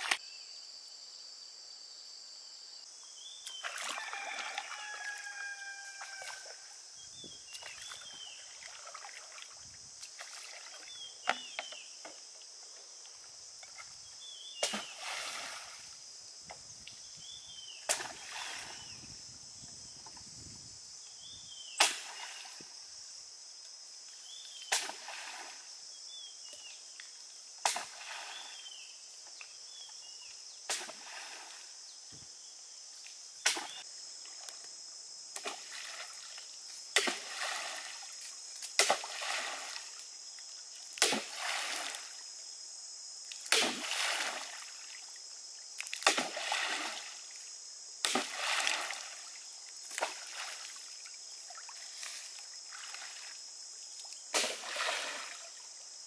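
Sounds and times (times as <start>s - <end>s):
bamboo pole slapping water: 3.4s - 5.3s, 7.5s - 11.8s, 14.6s - 15.8s, 17.8s - 18.8s, 21.8s - 22.6s, 24.6s - 25.5s, 27.6s - 28.4s, 30.7s - 31.4s, 33.4s - 33.8s, 35.4s - 40.0s, 40.9s - 42.2s, 43.3s - 45.0s, 45.8s - 47.2s, 48.0s - 50.8s, 54.0s - 55.6s.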